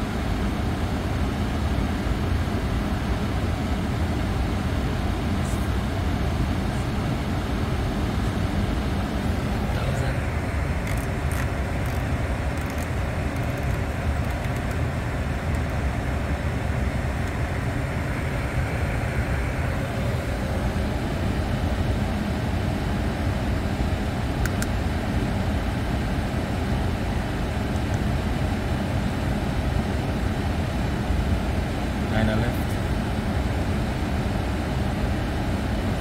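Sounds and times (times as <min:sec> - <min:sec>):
aircraft cockpit rumble: 0:00.0 - 0:36.0
faint click: 0:24.4 - 0:24.7.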